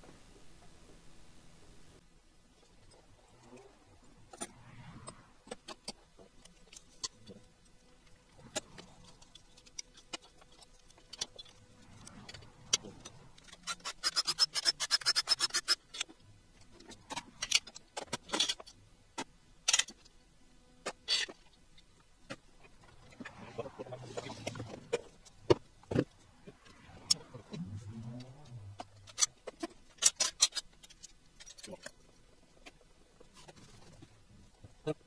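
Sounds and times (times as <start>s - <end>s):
metal tools clicking: 8.5s - 16.1s, 28.8s - 32.0s.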